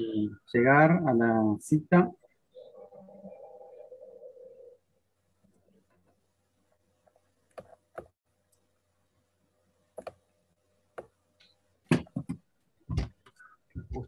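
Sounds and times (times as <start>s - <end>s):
keyboard and mouse clicks: 10.0s - 10.2s.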